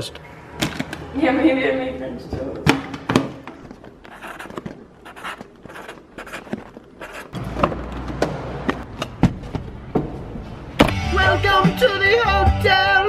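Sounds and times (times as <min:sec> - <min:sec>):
scratchy handling strokes: 0:03.8 - 0:07.4
marker scratching on cardboard: 0:04.0 - 0:07.4.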